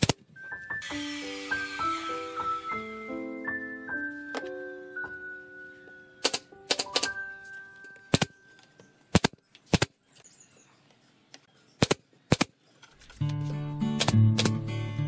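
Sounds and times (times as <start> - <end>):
nail gun firing into wood: 9.1 - 9.9, 11.8 - 12.6, 14.0 - 14.6.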